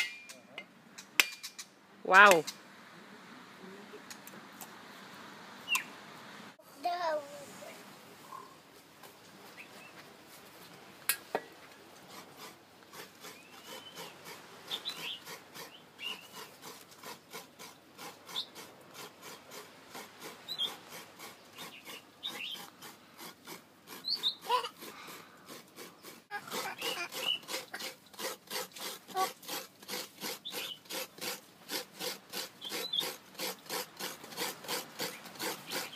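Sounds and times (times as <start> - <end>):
coconut grating rasping strokes: 12.0 - 35.9.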